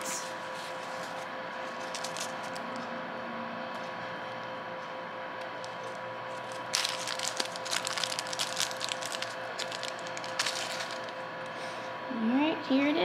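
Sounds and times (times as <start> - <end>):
faint hum: 0.0 - 13.0
plastic bag crinkling: 1.6 - 2.8, 5.6 - 11.3.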